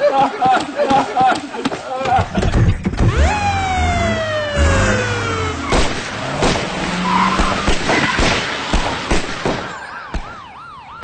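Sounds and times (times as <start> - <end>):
tyres skidding: 0.4 - 9.1
car engines accelerating: 2.7 - 9.1
long falling tone: 3.0 - 5.7
wailing siren: 3.0 - 8.2, 9.6 - 11.0.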